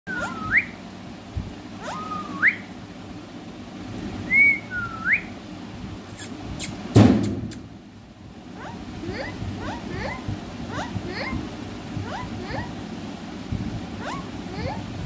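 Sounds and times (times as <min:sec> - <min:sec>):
parakeet whistling: 0:00.1 - 0:00.8, 0:01.8 - 0:02.7, 0:04.3 - 0:05.4, 0:08.6 - 0:11.4, 0:12.0 - 0:12.8, 0:14.0 - 0:14.8
loud thump: 0:07.0 - 0:07.5.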